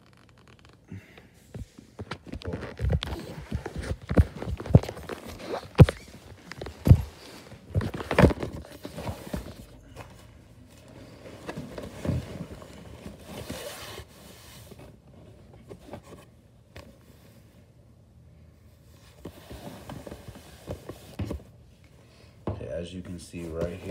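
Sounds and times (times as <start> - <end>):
rustling: 1.5 - 16.3.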